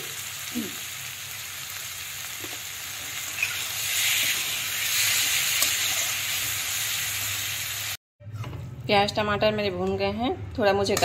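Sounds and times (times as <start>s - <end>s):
vegetables sizzling in hot oil: 0.0s - 8.0s.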